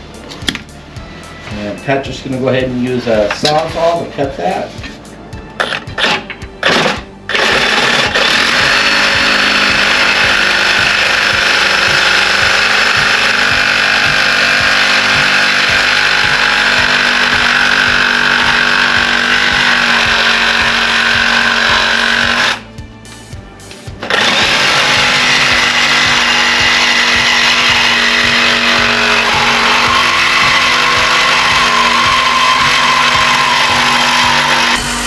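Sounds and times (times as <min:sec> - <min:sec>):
reciprocating saw cutting steel: 0:05.6 - 0:22.7, 0:24.0 - 0:35.0.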